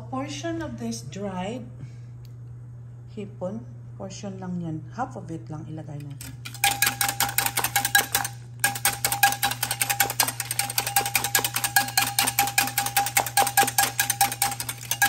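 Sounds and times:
whisk tapping bowl: 0:06.5 - 0:15.0.

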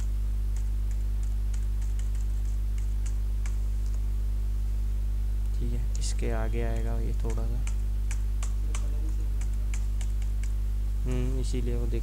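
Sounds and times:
mouse and keyboard clicking: 0:00.0 - 0:04.0, 0:06.7 - 0:10.6
steady low hum: 0:00.0 - 0:12.0.

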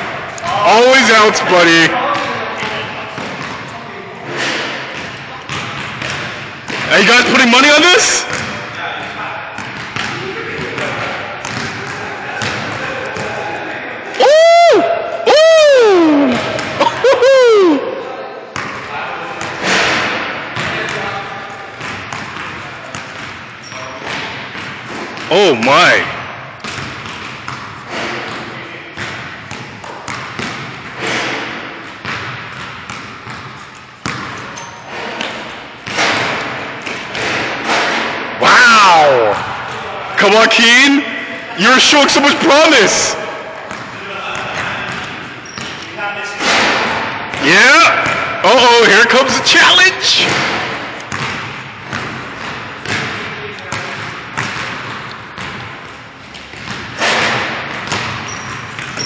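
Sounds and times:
basketball bouncing on gym floor: 0:02.0 - 0:03.7, 0:04.5 - 0:13.4, 0:16.2 - 0:17.0, 0:18.6 - 0:38.3, 0:43.0 - 0:48.4, 0:50.2 - 0:59.0.

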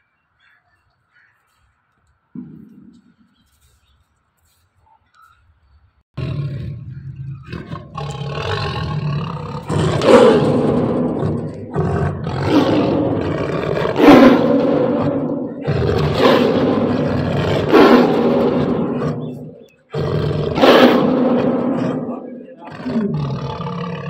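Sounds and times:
tiger growling: 0:06.2 - 0:24.0
tiger snarling: 0:06.2 - 0:24.0.

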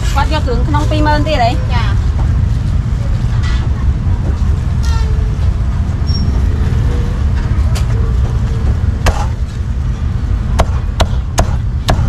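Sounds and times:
low rumble of street traffic: 0:00.0 - 0:12.0
cleaver chopping on wooden block: 0:10.6 - 0:12.0.

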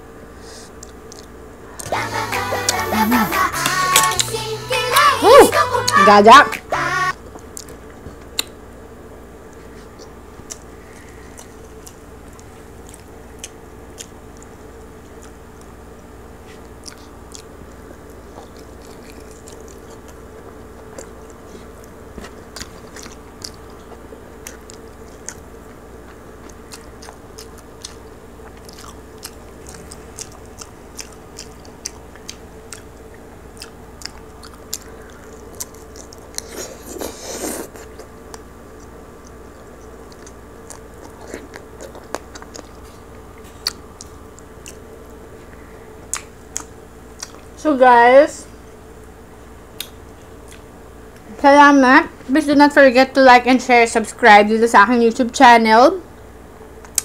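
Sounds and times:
low hum: 0:01.1 - 0:08.0, 0:08.8 - 0:36.4
crispy meat crunching: 0:16.5 - 0:47.5.

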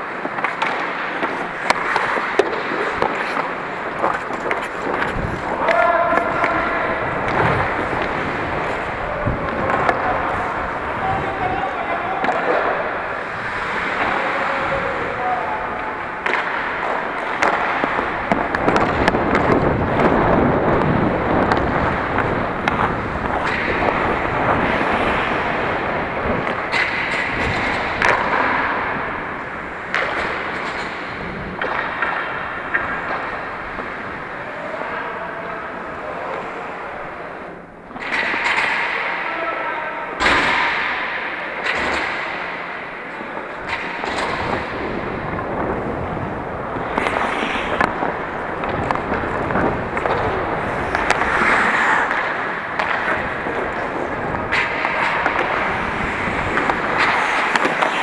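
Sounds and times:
skates scraping on ice: 0:00.0 - 0:58.0
sharp knocks of sticks and puck: 0:00.1 - 0:10.5, 0:15.8 - 0:25.4, 0:26.2 - 0:33.9, 0:37.9 - 0:39.5, 0:40.2 - 0:42.7, 0:43.4 - 0:45.7, 0:46.8 - 0:58.0.

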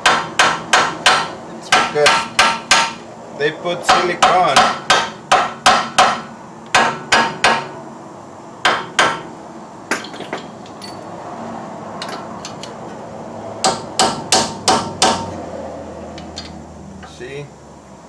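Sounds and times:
hammer striking metal: 0:00.0 - 0:03.0, 0:03.9 - 0:07.8, 0:08.6 - 0:09.3, 0:09.9 - 0:11.0, 0:13.6 - 0:15.3.

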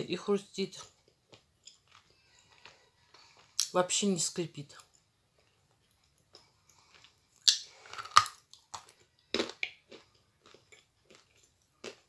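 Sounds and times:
crunching and chewing clay: 0:00.8 - 0:03.7, 0:05.3 - 0:12.0.

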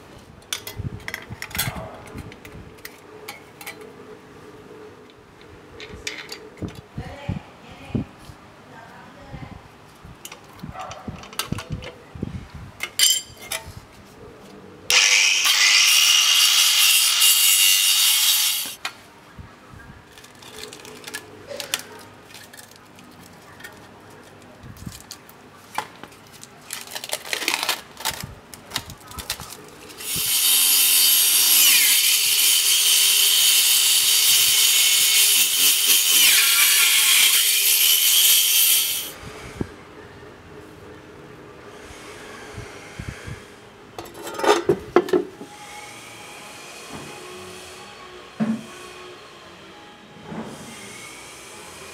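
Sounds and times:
saw blade cutting wood: 0:14.9 - 0:18.8, 0:30.0 - 0:39.1.

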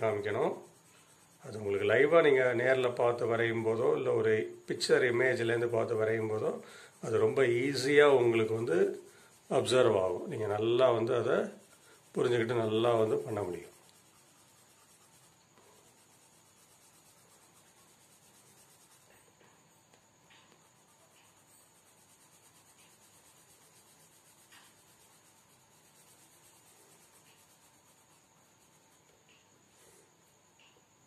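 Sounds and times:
pencil scratching on paper: 0:00.0 - 0:30.1
steady background hiss: 0:00.0 - 0:31.0.

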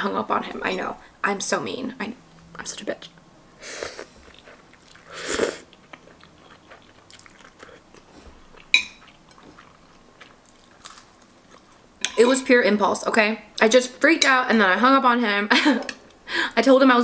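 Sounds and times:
chewing with wet mouth clicks: 0:04.2 - 0:11.8
metal spoon clinking on plate: 0:08.8 - 0:09.0.

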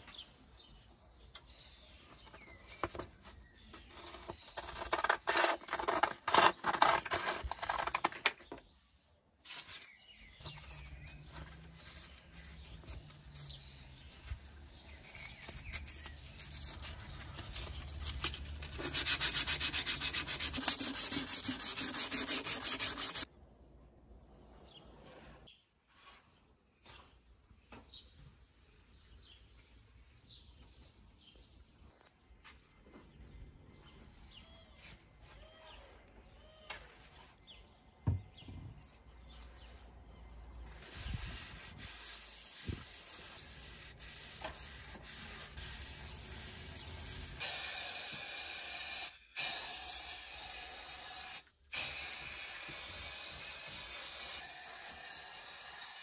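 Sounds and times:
birds chirping: 0:26.8 - 0:43.8.

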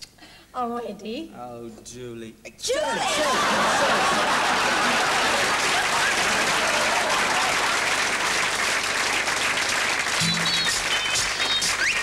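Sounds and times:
audience laughter: 0:02.9 - 0:08.9
audience applauding: 0:03.0 - 0:12.0.

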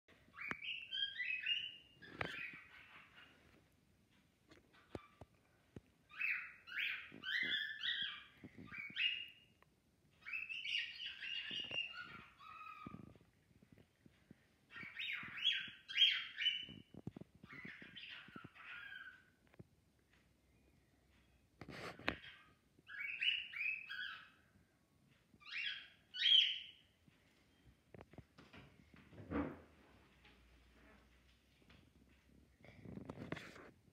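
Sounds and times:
cockatiel whistling song: 0:00.3 - 0:03.0, 0:06.1 - 0:09.4, 0:10.2 - 0:13.1, 0:14.7 - 0:19.3, 0:22.9 - 0:24.4, 0:25.4 - 0:26.8
cockatiel whistling: 0:06.1 - 0:09.3.

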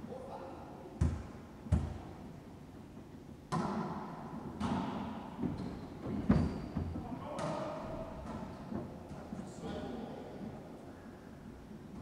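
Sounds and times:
volleyball smacks with echo: 0:03.5 - 0:05.1.

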